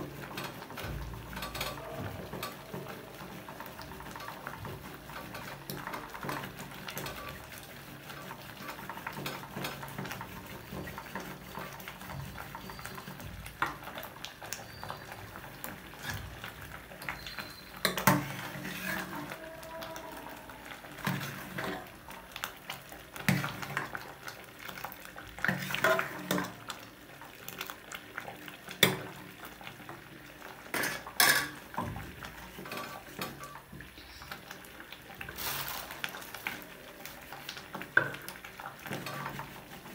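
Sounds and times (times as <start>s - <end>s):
stick stirring mash in pot: 0.0s - 39.9s.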